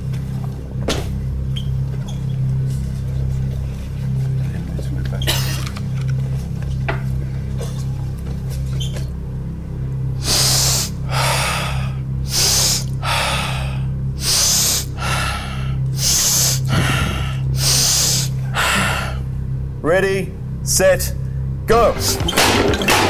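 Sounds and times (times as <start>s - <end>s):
man breathing hard: 10.2s - 19.4s.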